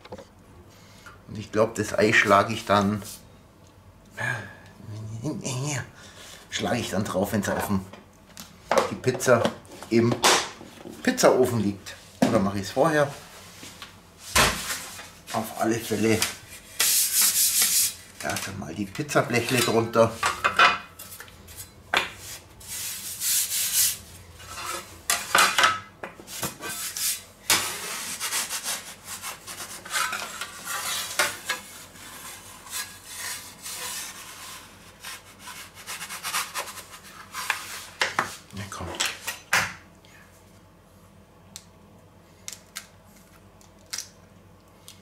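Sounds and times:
metal peel scraping wooden board: 0:22.7 - 0:25.4, 0:26.5 - 0:37.8.

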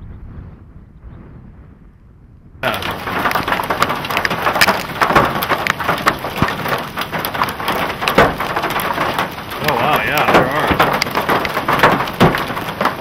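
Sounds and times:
hail impacts: 0:02.6 - 0:13.0
rain falling hard: 0:02.6 - 0:13.0.

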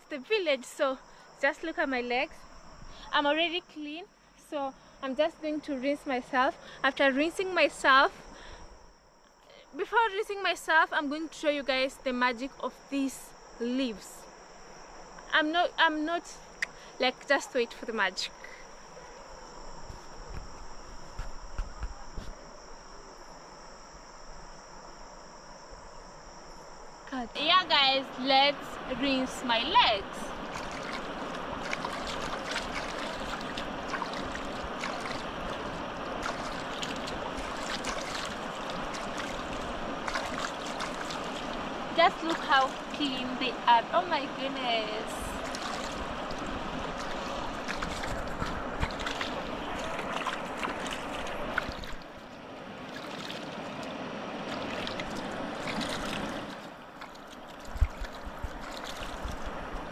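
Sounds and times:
river water running: 0:00.0 - 0:59.9
water splashes and drips: 0:28.6 - 0:59.9.

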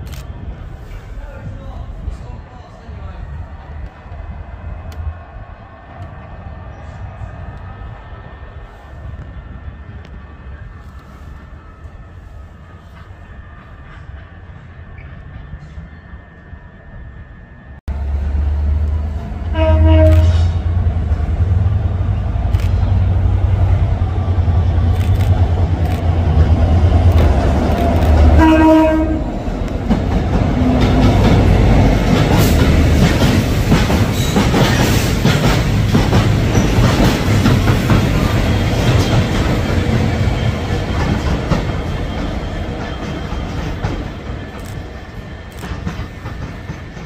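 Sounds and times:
diesel locomotive engine: 0:00.0 - 0:47.0
train horn blasts: 0:19.4 - 0:20.8, 0:28.2 - 0:29.4.

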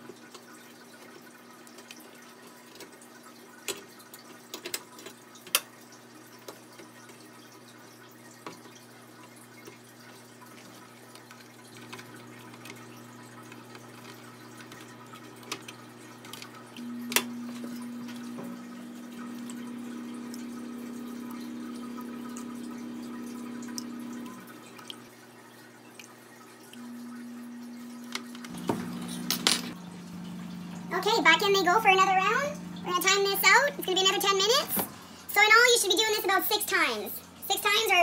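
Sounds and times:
steady hum: 0:15.8 - 0:38.0.

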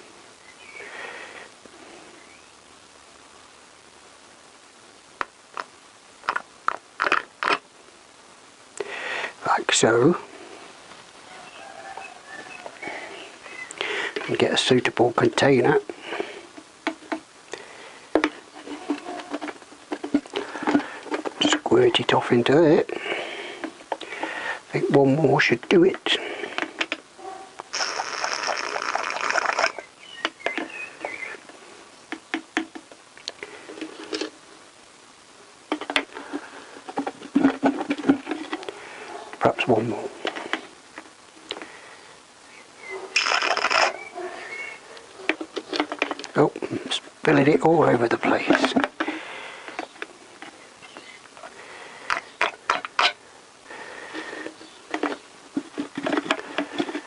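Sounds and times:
siphon tube slurping fluid: 0:27.7 - 0:29.8
plastic squeaks and clicks: 0:27.8 - 0:31.2.

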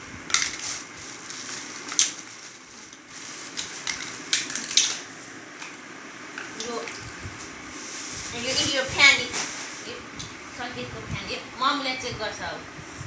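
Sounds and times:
plastic bag crinkling: 0:00.3 - 0:05.2.

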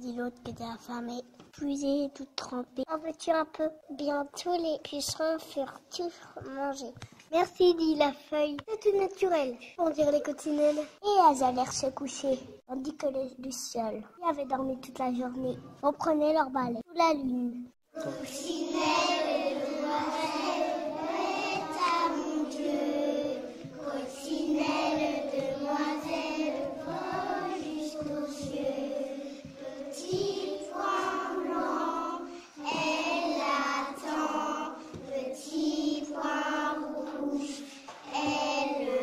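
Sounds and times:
children singing in unison: 0:18.0 - 0:39.0.

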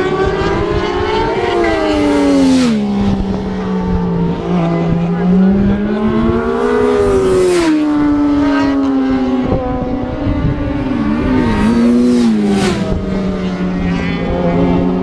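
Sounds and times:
racing motorcycle engines revving: 0:00.0 - 0:15.0.

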